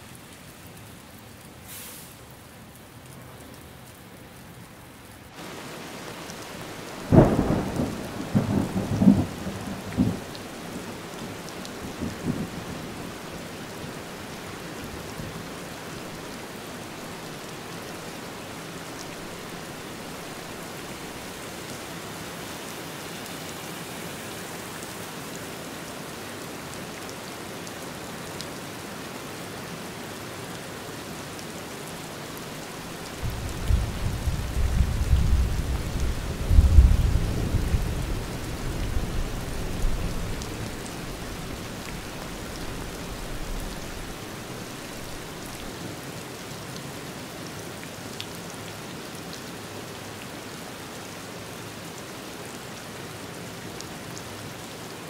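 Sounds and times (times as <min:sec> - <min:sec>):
steady rain falling: 0:00.0 - 0:55.0
low thunder rumbling: 0:06.8 - 0:10.9, 0:33.2 - 0:42.1.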